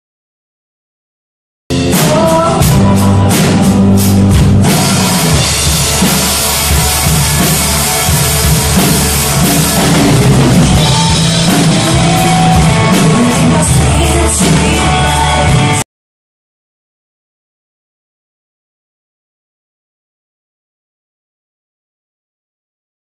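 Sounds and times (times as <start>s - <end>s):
band music: 1.7s - 15.8s
drum kit playing: 1.7s - 15.8s.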